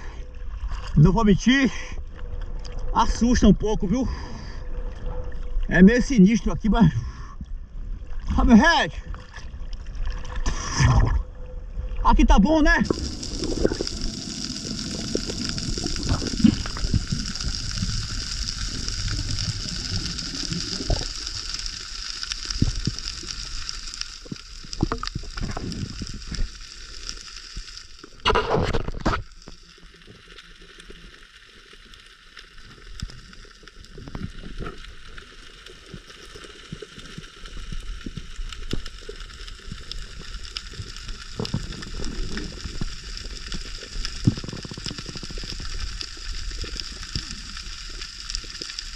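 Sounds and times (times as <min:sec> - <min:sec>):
muffled underwater rushing water: 0:00.0 - 0:48.9.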